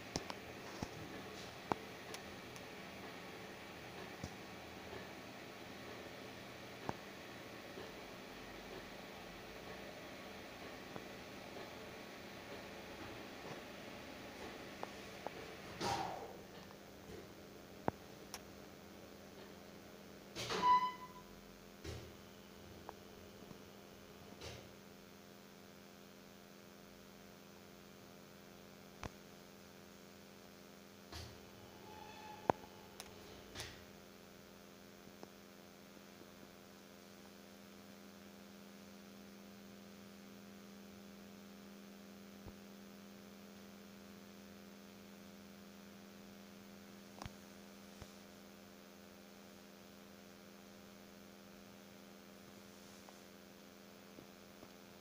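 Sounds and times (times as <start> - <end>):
electrical mains hum: 0.0 - 55.0
brief higher tone: 20.6 - 21.3.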